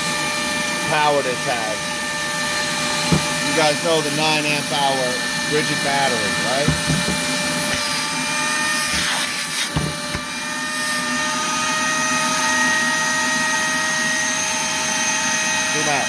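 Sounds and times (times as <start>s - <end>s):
shop vacuum whining: 0.0s - 16.0s
knocks: 3.1s - 3.4s, 6.6s - 7.3s, 9.7s - 10.2s.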